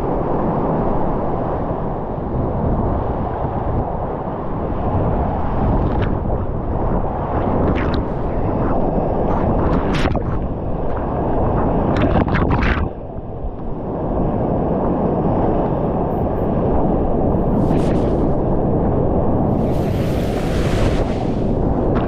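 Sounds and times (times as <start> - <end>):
spray splashing on microphone: 17.5 - 18.4, 19.5 - 22.0.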